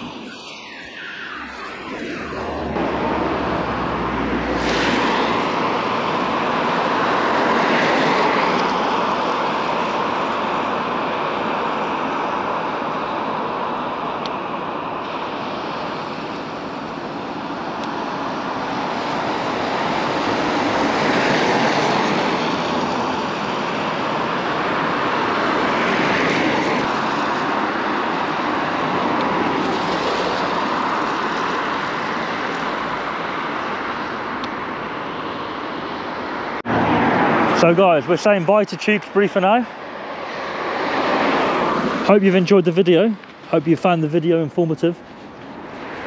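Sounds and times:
traffic on a wet road: 0.0s - 46.0s
fast-flowing floodwater: 4.4s - 14.0s.

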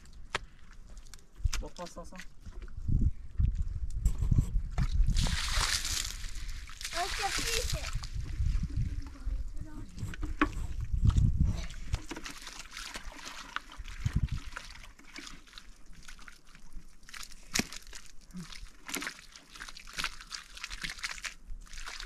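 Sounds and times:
water sloshing and trickling: 4.7s - 22.0s.

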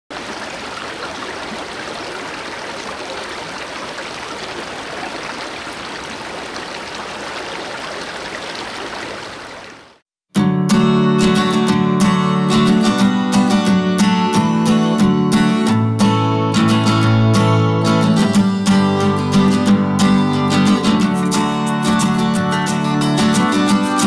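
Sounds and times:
stream water flowing: 0.1s - 10.0s
strummed acoustic guitar music: 10.3s - 24.0s.

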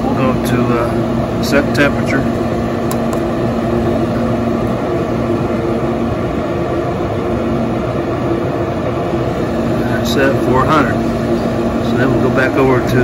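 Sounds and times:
grill fan humming: 0.0s - 13.0s.

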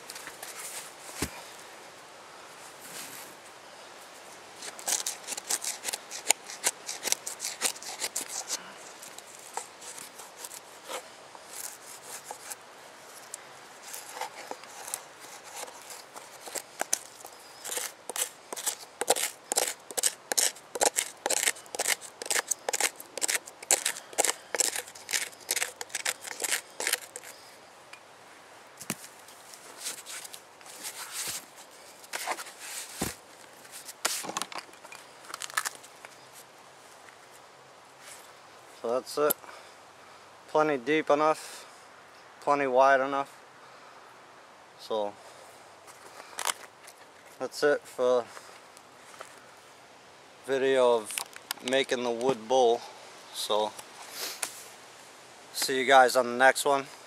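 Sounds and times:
wooden stick scraping charred wood: 4.6s - 27.5s, 28.8s - 36.5s.

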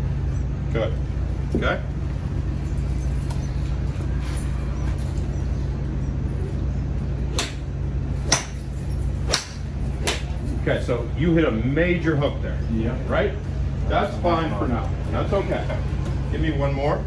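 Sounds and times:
steady low hum: 0.0s - 17.0s
golf balls being struck: 7.3s - 10.4s.

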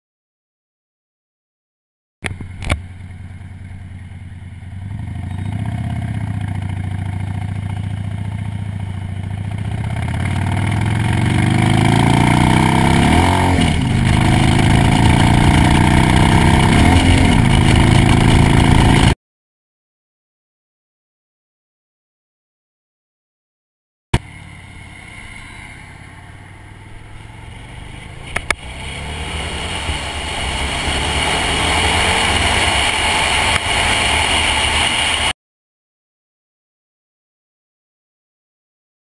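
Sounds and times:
motorcycle engine revving: 2.2s - 19.2s, 24.2s - 35.3s
wind noise: 12.7s - 19.2s
gear changes: 24.2s - 35.3s.

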